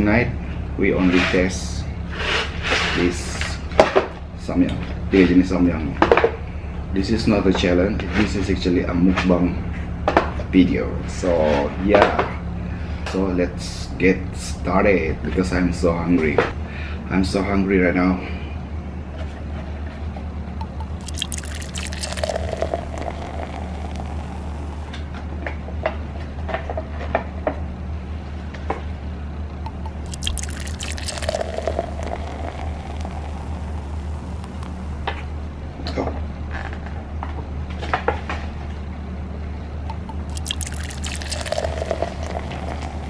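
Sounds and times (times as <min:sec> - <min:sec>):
hot water pouring into cups: 0:20.6 - 0:25.0, 0:29.7 - 0:35.4, 0:39.9 - 0:43.0
steady low hum: 0:29.7 - 0:35.8.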